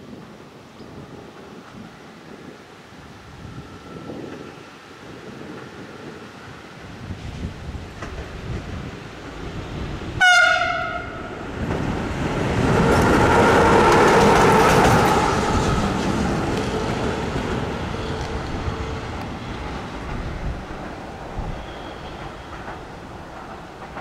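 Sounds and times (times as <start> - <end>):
locomotive horn blast: 10.2 - 11.4
wheels clattering over rails: 11.2 - 24.0.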